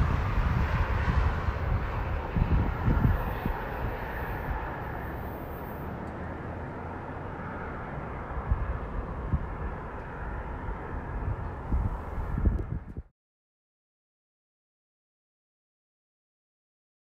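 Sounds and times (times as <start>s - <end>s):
wind thumps on microphone: 0.0s - 4.3s, 11.2s - 13.1s
freight train wheels rumbling on rail: 0.0s - 5.3s.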